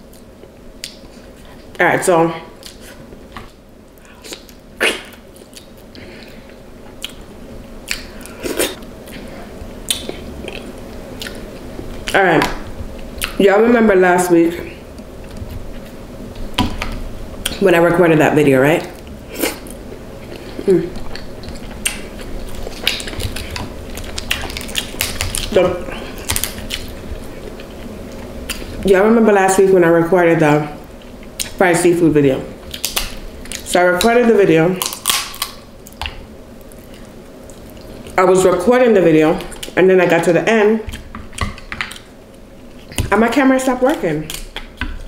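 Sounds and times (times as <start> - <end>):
person chewing food: 2.6 - 12.2, 19.0 - 28.8, 32.6 - 33.7, 34.8 - 38.2.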